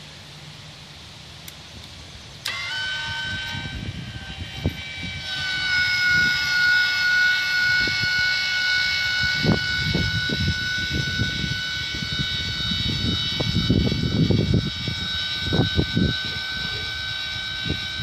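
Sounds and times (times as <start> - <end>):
actuator motor whining: 1.8 - 18.0.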